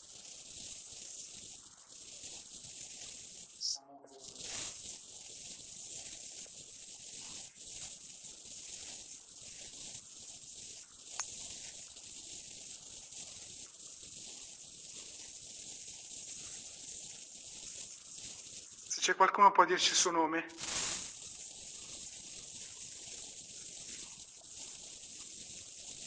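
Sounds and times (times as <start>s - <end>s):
high-pitched background hiss: 0.0s - 26.0s.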